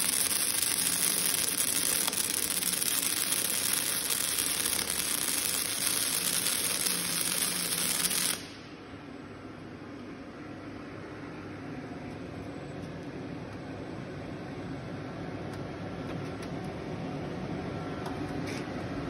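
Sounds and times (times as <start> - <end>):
welding arc hissing: 0.0 - 8.6.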